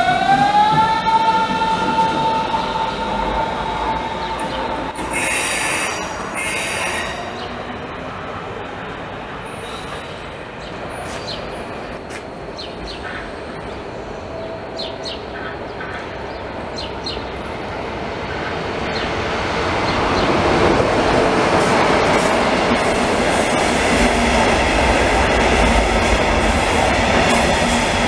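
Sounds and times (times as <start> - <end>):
train wheels rumbling on track: 0.0 - 28.0
train wheels squeaking: 4.9 - 7.5.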